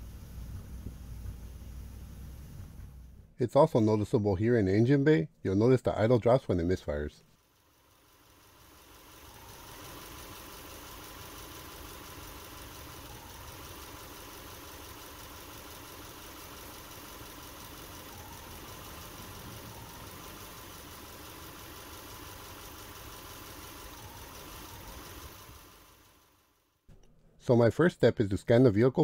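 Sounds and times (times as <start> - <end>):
car engine idling with misfire: 0.0 - 3.4, 7.4 - 26.5.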